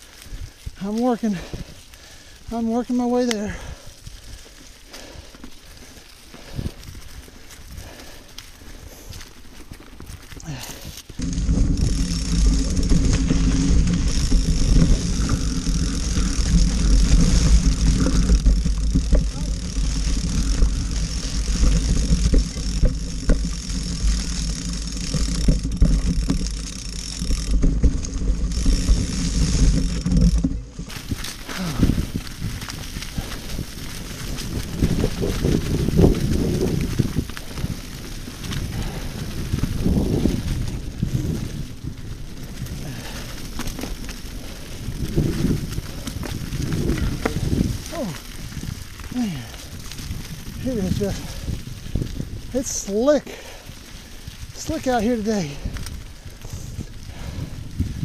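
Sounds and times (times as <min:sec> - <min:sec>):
bike tyre crunching through leaves: 0:00.0 - 0:58.0
wind buffeting microphone: 0:03.4 - 0:09.3, 0:09.9 - 0:58.0.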